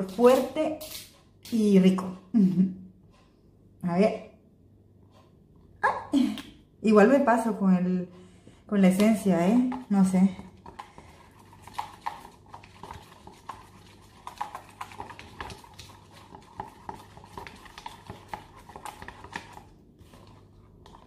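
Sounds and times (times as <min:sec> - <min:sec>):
plastic stick scraping plastic tub: 0:08.9 - 0:21.0.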